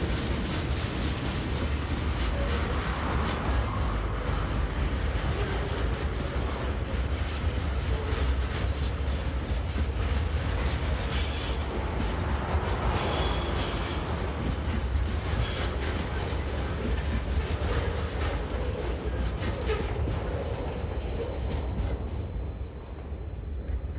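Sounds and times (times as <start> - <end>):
train wheels rumbling on rail: 0.0 - 23.9
high wheel squeal: 10.9 - 11.8, 12.9 - 14.3, 15.2 - 16.8, 17.4 - 23.9.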